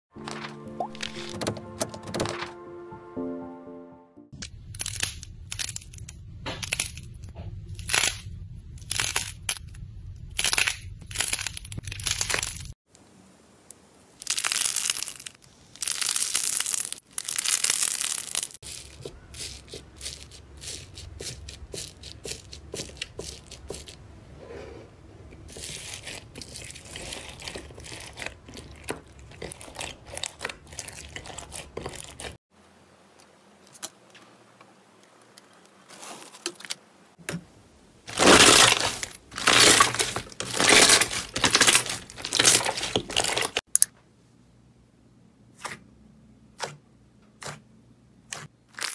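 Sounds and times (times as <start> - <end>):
slime crackling and squishing: 4.5 - 12.8, 14.2 - 24.0, 25.4 - 32.4, 38.1 - 43.7.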